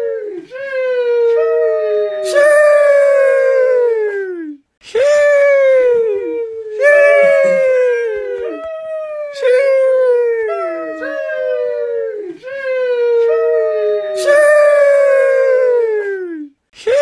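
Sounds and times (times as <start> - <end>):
voice drawing out sheesh: 6.8 - 8.6, 14.1 - 17.0.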